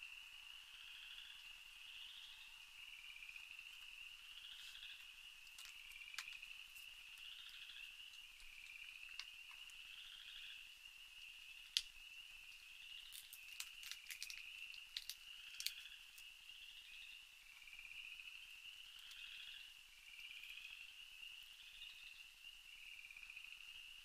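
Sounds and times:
night insects trilling: 0:00.0 - 0:24.0.

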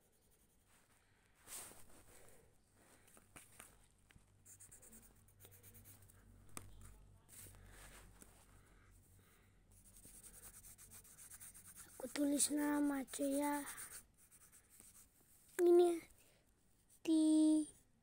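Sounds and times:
pencil scratching on paper: 0:00.0 - 0:00.7, 0:04.4 - 0:06.2, 0:09.7 - 0:15.1.

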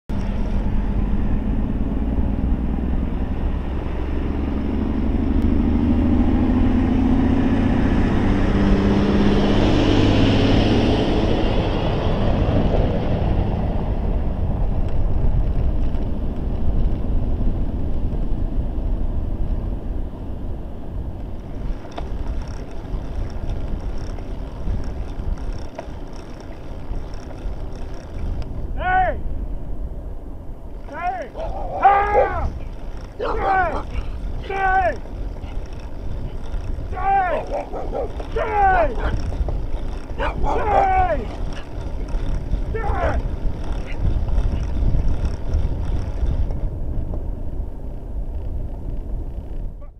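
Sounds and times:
road noise: 0:00.1 - 0:49.9
wind buffeting microphone: 0:00.1 - 0:49.9
light rapid ticking: 0:21.4 - 0:28.6, 0:30.8 - 0:47.2
truck diesel engine: 0:30.9 - 0:46.3.

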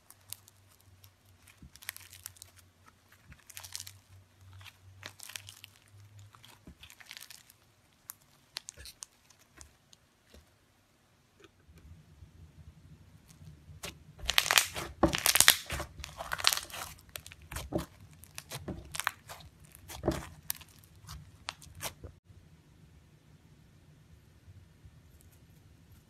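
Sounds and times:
slime crackling and crunching: 0:00.0 - 0:10.5, 0:13.2 - 0:22.2.

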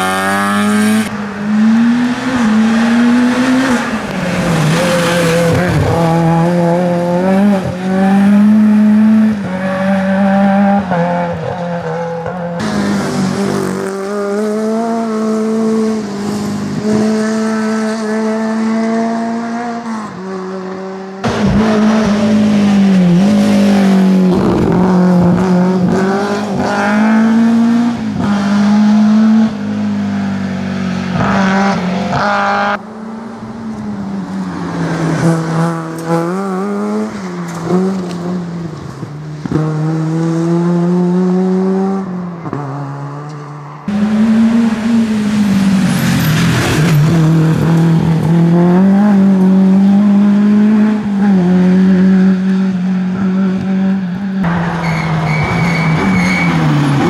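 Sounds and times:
rally car engines revving: 0:00.0 - 0:57.0.

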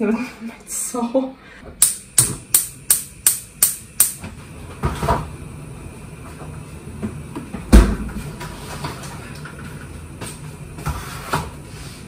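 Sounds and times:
kitchen door shutting with thump: 0:07.7 - 0:08.1.

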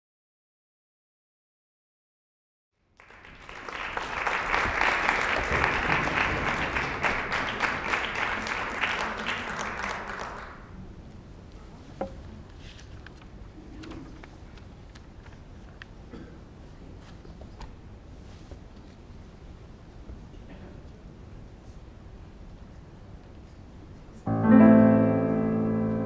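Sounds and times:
audience applauding: 0:03.0 - 0:10.8.

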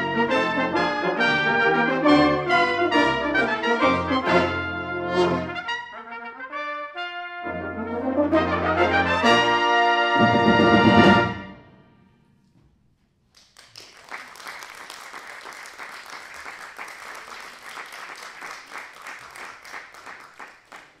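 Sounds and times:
brass band chord: 0:00.0 - 0:12.2
audience applause: 0:13.4 - 0:21.0.

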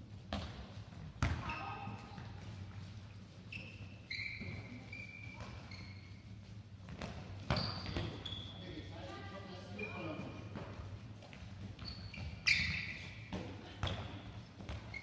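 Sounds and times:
ball bouncing on floor: 0:00.2 - 0:02.9, 0:06.8 - 0:08.4, 0:10.5 - 0:15.0
shoes squeaking on floor: 0:01.2 - 0:15.0.

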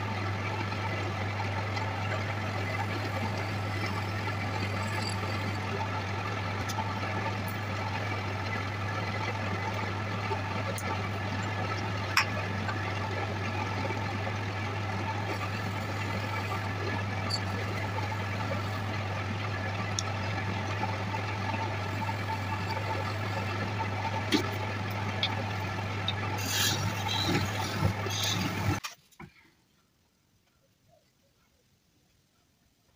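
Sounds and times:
lathe motor humming: 0:00.0 - 0:28.8.

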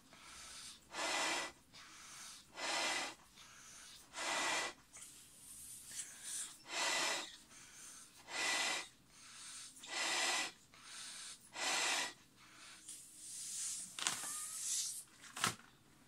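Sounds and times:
quiet inhales: 0:00.0 - 0:14.0
exhales blown into balloon: 0:08.3 - 0:08.9.

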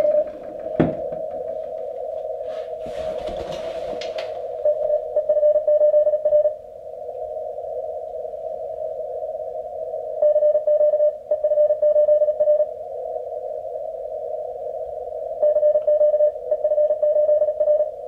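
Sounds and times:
morse code tones: 0:00.0 - 0:01.1, 0:04.6 - 0:06.6, 0:10.2 - 0:12.7, 0:15.4 - 0:17.9.

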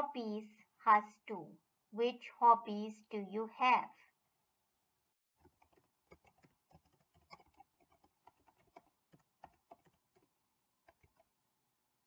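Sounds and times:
keyboard typing: 0:05.4 - 0:11.4.

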